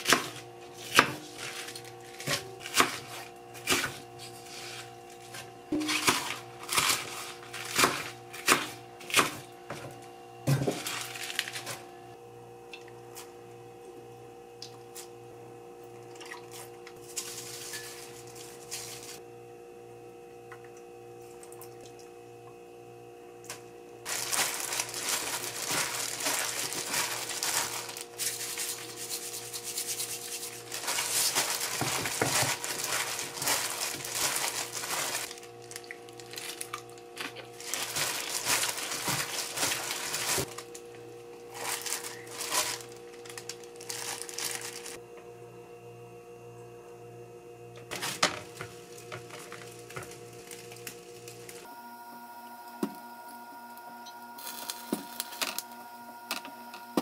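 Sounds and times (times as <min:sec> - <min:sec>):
knife chopping on wooden board: 0:00.0 - 0:01.6
glove and wet leaves rustling: 0:10.7 - 0:11.8, 0:24.0 - 0:40.7, 0:41.5 - 0:45.0.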